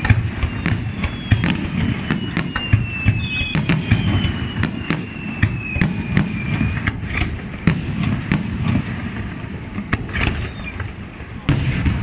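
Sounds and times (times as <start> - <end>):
thin falling whistle: 0.0 - 6.9, 8.6 - 10.8
fireworks bangs and crackles: 0.0 - 12.0.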